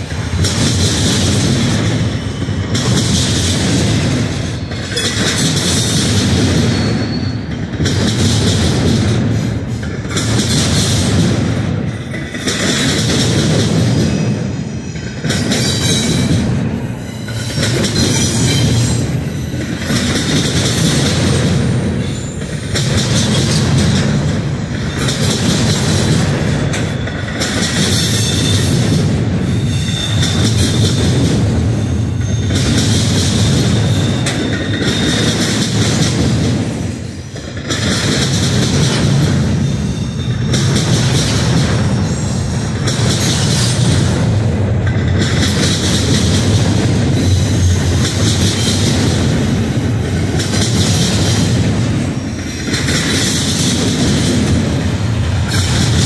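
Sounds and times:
high ringing of wheels on rail: 0:00.0 - 0:56.0
train wheels rolling past: 0:00.0 - 0:56.0.

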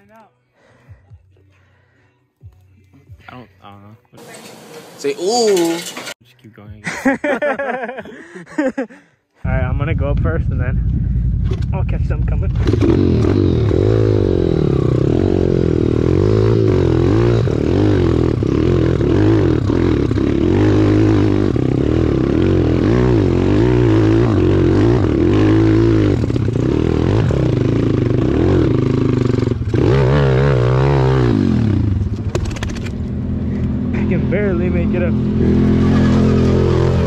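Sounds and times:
motorcycle engine revving: 0:11.1 - 0:37.0.

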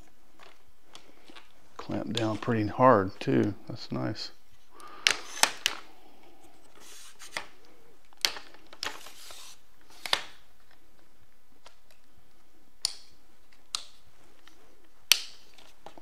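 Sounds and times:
tripod legs sliding out: 0:05.1 - 0:05.8, 0:06.5 - 0:07.6, 0:08.8 - 0:10.2.

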